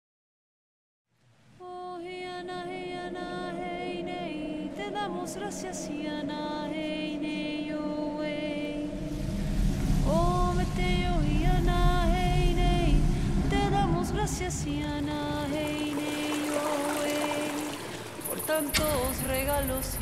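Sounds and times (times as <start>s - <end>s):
low rumble: 8.4s - 18.2s
person chanting: 9.9s - 20.0s.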